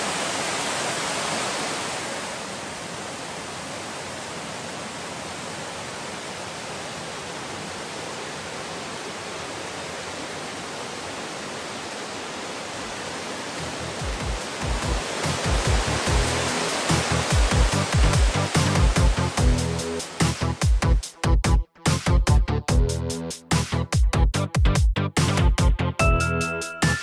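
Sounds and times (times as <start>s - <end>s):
stream rushing over rocks: 0.0s - 21.1s.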